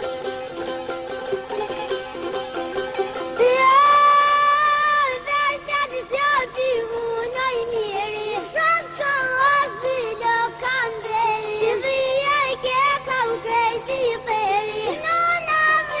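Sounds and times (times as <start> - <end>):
instrumental accompaniment: 0.0 - 16.0
high voice singing: 3.4 - 16.0.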